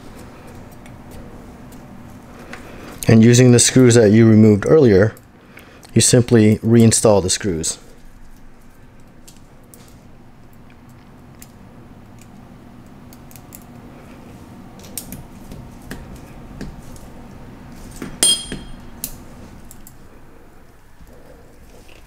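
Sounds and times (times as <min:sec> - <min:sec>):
sharp metallic clink: 0:18.2 - 0:18.8.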